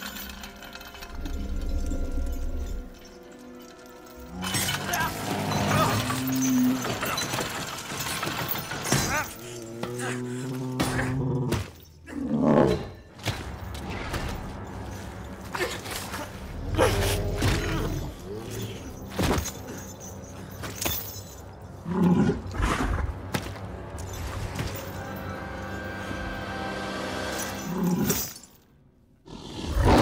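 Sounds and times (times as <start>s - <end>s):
creature growling and roaring: 9.1s - 13.0s, 16.2s - 18.9s, 29.2s - 30.0s.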